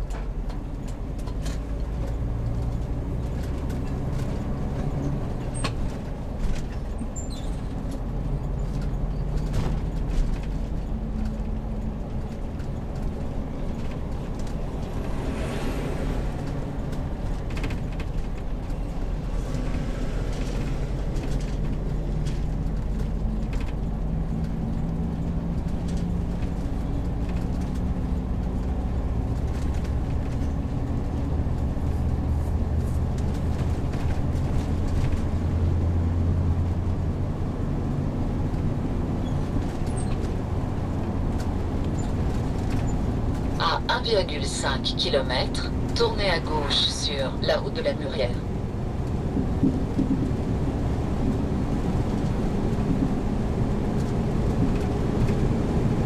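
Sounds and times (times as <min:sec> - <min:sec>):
rattles and knocks: 0:00.0 - 0:15.2, 0:48.9 - 0:55.9
motorhome engine and road hum: 0:00.0 - 0:56.0.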